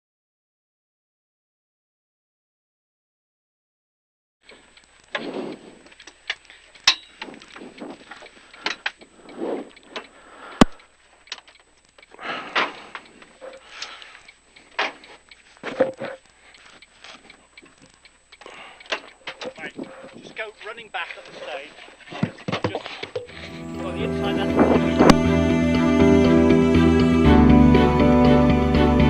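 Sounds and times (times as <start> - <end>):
sharp clicks: 4.4 - 22.1
rustles: 4.4 - 23.4.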